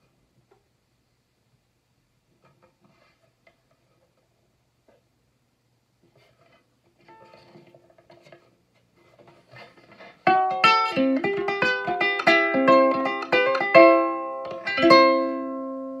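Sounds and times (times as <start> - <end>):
faint handling noise: 2.2 - 10.3
ukulele picked notes and chords: 10.2 - 16.0.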